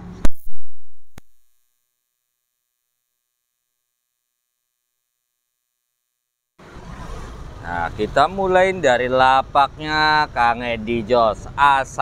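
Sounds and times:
sharp click: 0:00.2 - 0:01.4.

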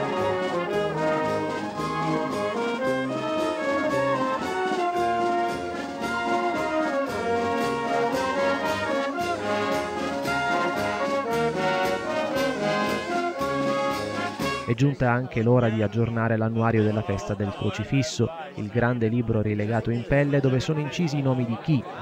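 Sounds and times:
wind band playing a tune: 0:00.0 - 0:14.8.

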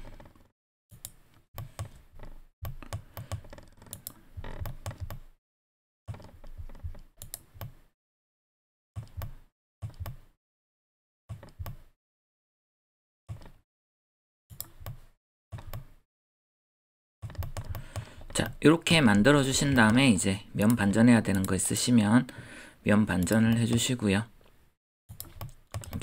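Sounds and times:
computer mouse and keyboard clicking: 0:00.0 - 0:05.3, 0:06.1 - 0:07.8, 0:09.0 - 0:10.2, 0:17.2 - 0:20.0, 0:23.2 - 0:23.9, 0:25.1 - 0:26.0.

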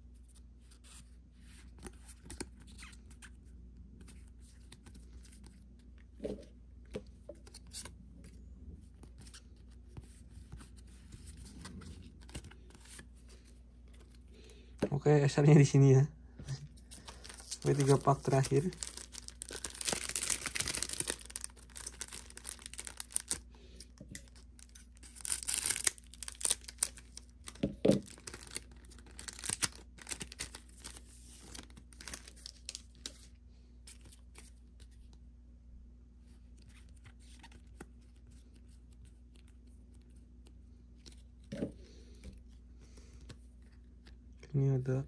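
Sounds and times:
foil wrappers tearing and crinkling: 0:17.0 - 0:23.4, 0:24.3 - 0:33.1.

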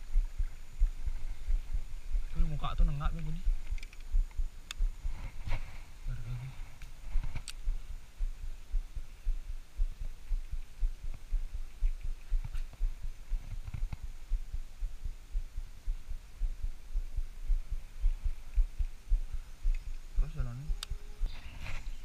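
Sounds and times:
low thumping rumble: 0:00.0 - 0:22.0
faint clicks: 0:03.2 - 0:04.9, 0:06.8 - 0:07.7, 0:19.6 - 0:20.1.

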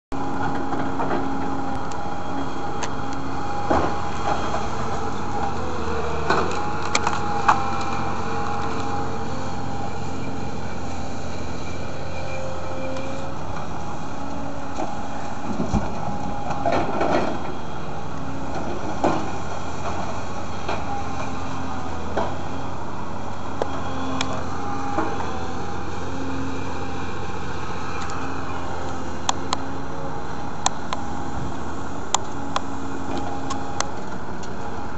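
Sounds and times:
excavator diesel engine running: 0:00.1 - 0:34.9
branches snapping and dropping: 0:06.2 - 0:09.0.

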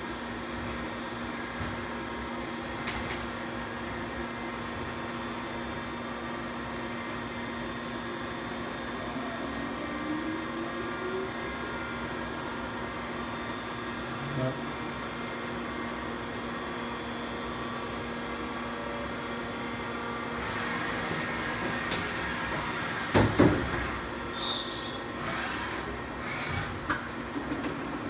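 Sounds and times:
machine hum with constant tones: 0:00.0 - 0:28.0
rising whine: 0:08.4 - 0:15.3.

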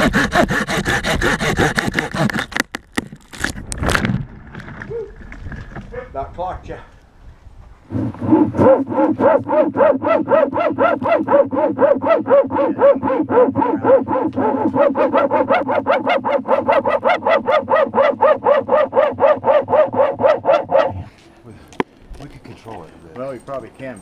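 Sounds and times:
dog barking: 0:08.6 - 0:21.1.

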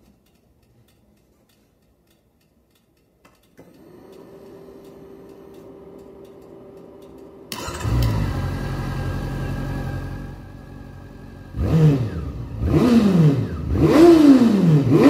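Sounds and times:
faint ticking: 0:00.0 - 0:07.3.

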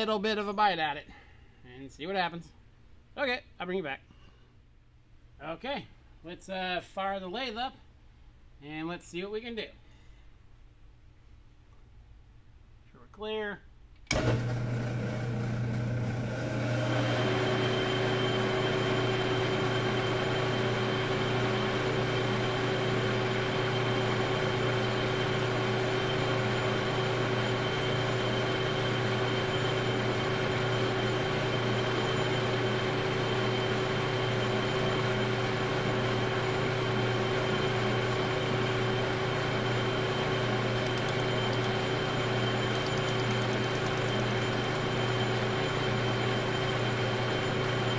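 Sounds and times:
lathe low hum: 0:14.0 - 0:47.9
lathe high whine: 0:14.1 - 0:47.9.

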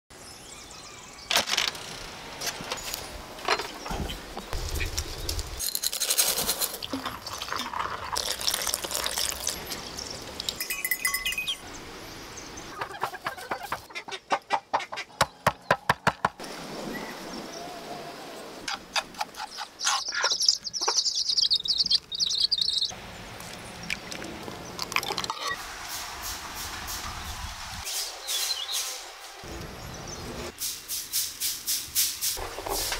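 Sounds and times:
chick peeping: 0:12.7 - 0:15.2, 0:19.4 - 0:22.9
chickens clucking: 0:12.7 - 0:15.4, 0:18.7 - 0:22.9.

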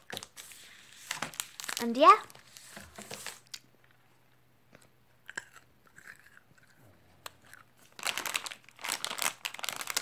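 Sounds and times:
plastic wrapper crinkling: 0:00.0 - 0:03.6, 0:07.2 - 0:10.0.

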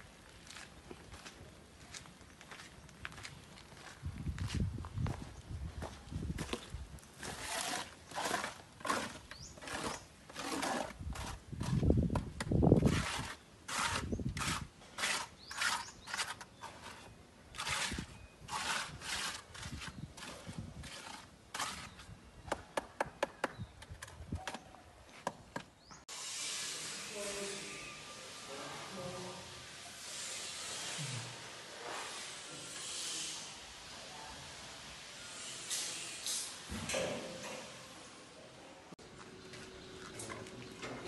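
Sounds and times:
gritty scraping strokes: 0:05.8 - 0:22.2, 0:26.2 - 0:33.6.

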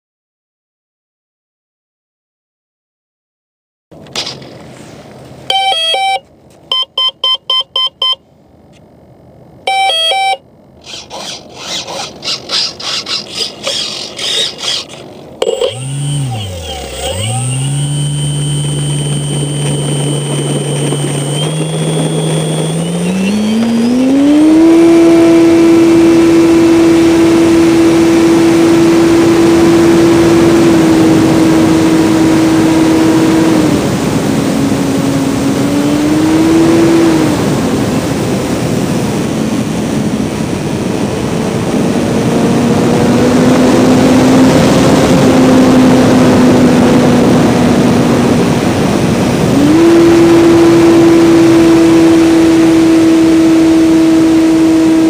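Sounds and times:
short electronic beeps: 0:05.5 - 0:08.2, 0:09.7 - 0:10.4, 0:15.4 - 0:24.0
electric motor whine: 0:10.8 - 0:38.2, 0:41.4 - 0:55.0.

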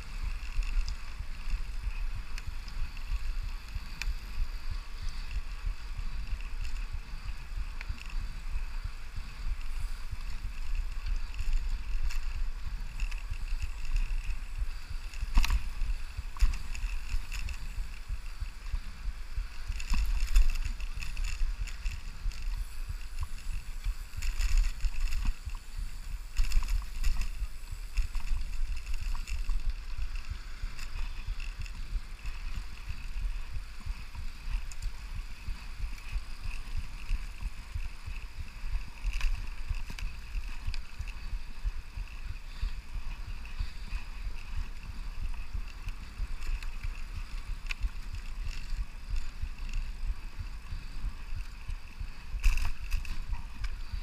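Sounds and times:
bicycle tyre and drivetrain noise: 0:00.0 - 0:54.0
wind buffeting microphone: 0:00.0 - 0:54.0.

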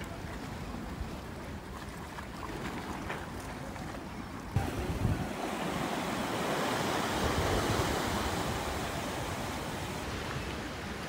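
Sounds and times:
sea waves washing over pier timbers: 0:00.0 - 0:11.0
wind on the microphone: 0:04.5 - 0:11.0.

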